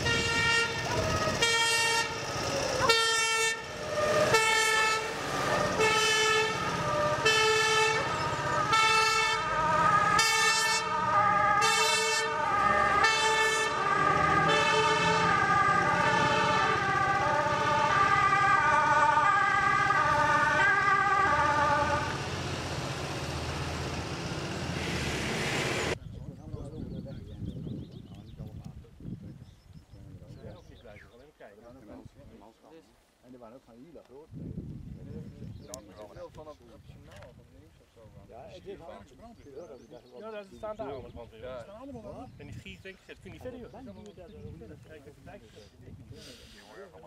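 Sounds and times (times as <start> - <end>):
two-tone fire engine sirens: 0.0 - 24.6
truck engines rumbling: 0.0 - 26.0.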